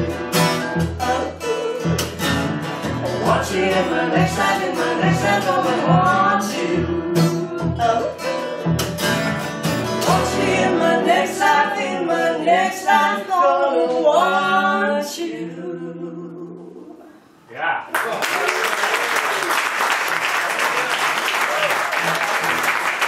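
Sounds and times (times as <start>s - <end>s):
acoustic guitar strumming: 0.0s - 13.5s
woman singing: 0.8s - 2.1s, 3.2s - 8.5s, 10.0s - 17.1s.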